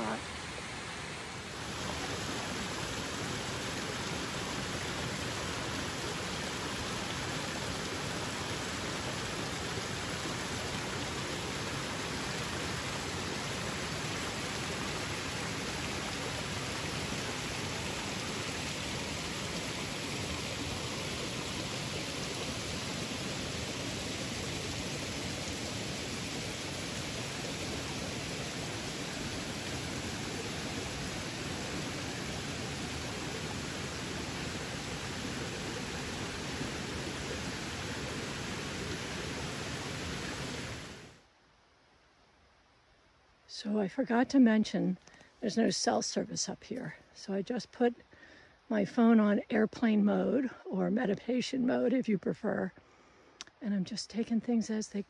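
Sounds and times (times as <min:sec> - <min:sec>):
stream splashing over rocks: 0:00.0 - 0:41.2.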